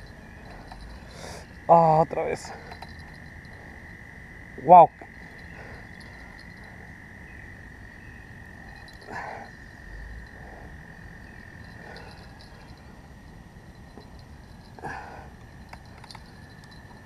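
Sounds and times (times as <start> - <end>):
frog low croaks: 0.0 - 17.0.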